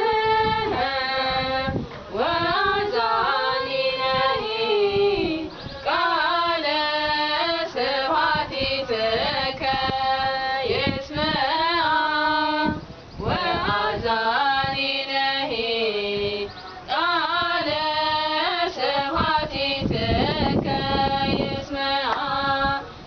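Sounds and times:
women singing a hymn unaccompanied: 0.0s - 23.0s.

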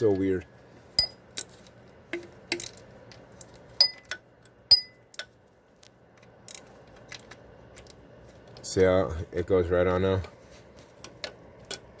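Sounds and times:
metallic ring: 1.0s - 1.2s, 3.8s - 5.1s.

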